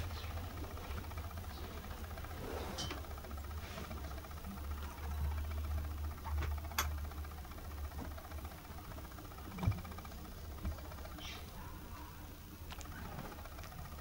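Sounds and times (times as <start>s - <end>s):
indoor low hum: 0.0s - 14.0s.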